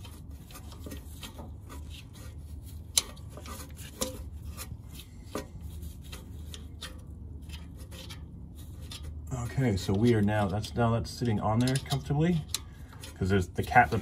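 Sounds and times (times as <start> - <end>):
low steady hum: 0.0 - 14.0
cable end screwed on threaded rod: 9.9 - 14.0.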